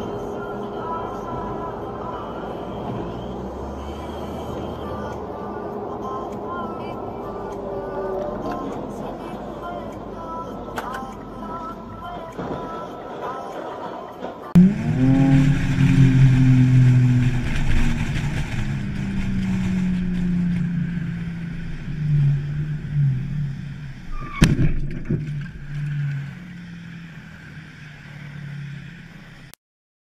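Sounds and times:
car engine humming: 0:00.0 - 0:29.6
car collision crash: 0:24.2 - 0:25.5.

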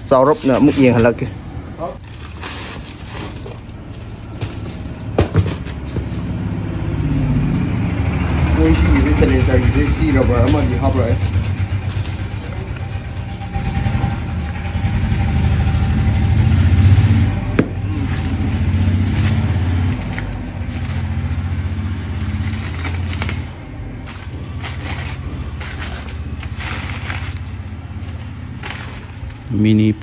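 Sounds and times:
newspaper crackling and tearing: 0:01.8 - 0:05.2, 0:10.0 - 0:12.8, 0:17.8 - 0:30.0
paper rustling: 0:02.0 - 0:06.3, 0:10.3 - 0:12.4, 0:17.8 - 0:30.0
engine low pulsing rumble: 0:06.2 - 0:30.0.

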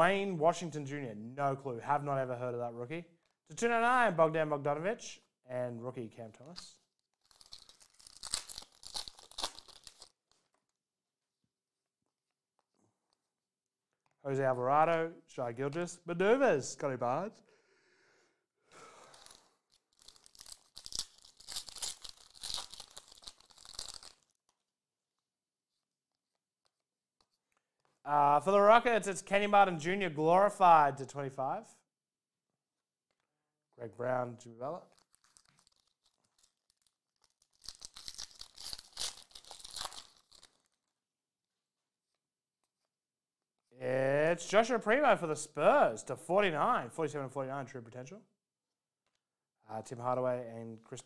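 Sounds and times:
foil wrapper tearing and crinkling: 0:07.0 - 0:10.6, 0:19.0 - 0:24.7, 0:34.9 - 0:41.0.

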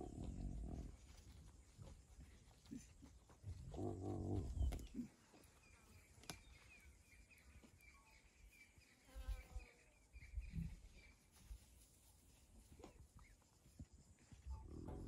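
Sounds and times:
low animal growl: 0:00.0 - 0:01.2, 0:02.7 - 0:05.2, 0:14.5 - 0:15.0
low animal grunt and call: 0:00.0 - 0:01.2, 0:02.0 - 0:05.5, 0:14.5 - 0:15.0.

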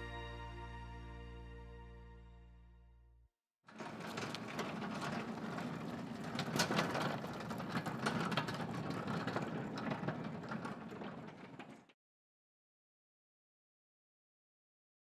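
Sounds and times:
pallet jack rolling on concrete: 0:03.7 - 0:12.0.

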